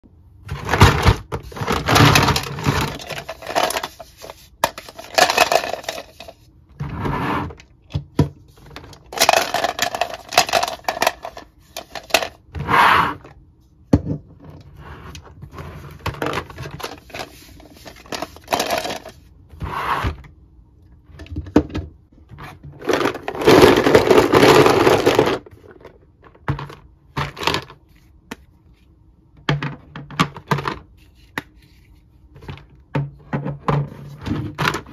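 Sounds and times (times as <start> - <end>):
plastic toys clattering in bin: 0.4 - 12.5, 15.4 - 19.3, 21.2 - 27.8, 29.4 - 30.9, 32.4 - 34.9.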